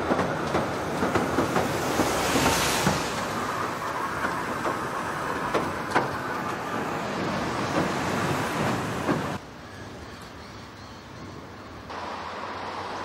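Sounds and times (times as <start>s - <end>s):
wheels clacking over rail joints: 0.0s - 9.4s
train rumbling: 0.0s - 10.0s.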